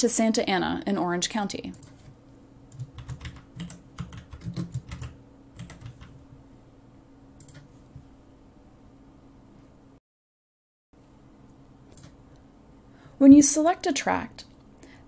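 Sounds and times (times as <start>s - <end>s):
faint steady hum: 0.0s - 10.0s, 11.0s - 15.0s
typing on a keyboard: 2.7s - 6.2s.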